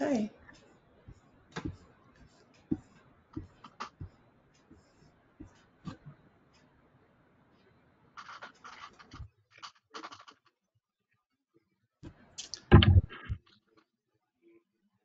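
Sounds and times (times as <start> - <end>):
microphone being handled: 12.0 - 13.5.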